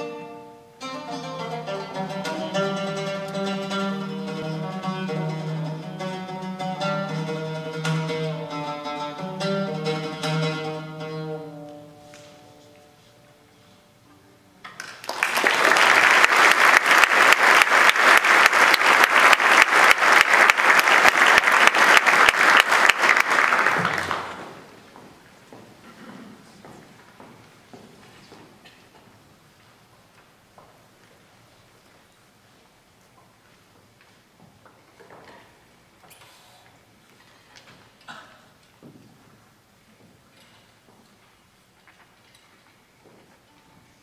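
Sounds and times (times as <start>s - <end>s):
oud and strings ensemble music: 0.0s - 12.8s
audience applause: 14.8s - 24.7s.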